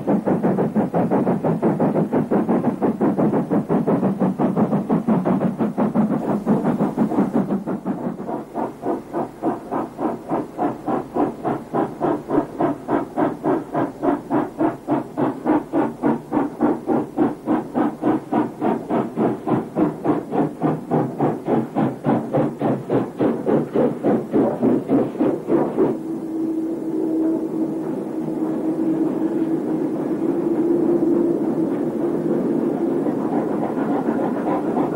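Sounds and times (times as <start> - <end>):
steam locomotive chuffing: 0.0 - 34.9.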